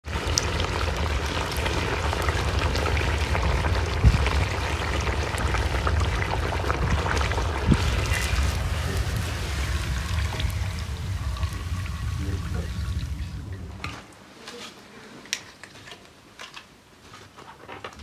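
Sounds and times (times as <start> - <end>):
dough frying in hot oil: 0.0 - 13.8
low steady rumble: 0.0 - 14.1.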